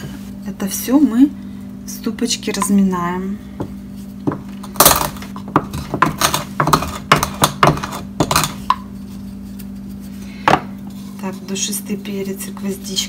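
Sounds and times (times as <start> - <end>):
pestle pounding in wooden mortar: 3.6 - 8.9.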